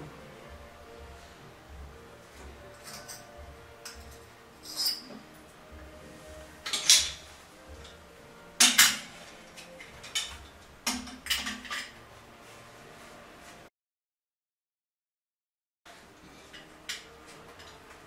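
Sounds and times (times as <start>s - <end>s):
wrench clanking against metal valve: 6.6s - 7.2s.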